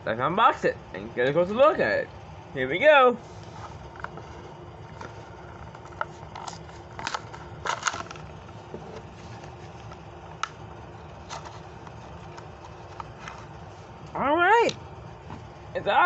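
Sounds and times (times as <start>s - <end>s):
plastic blister crinkling: 3.3s - 14.1s.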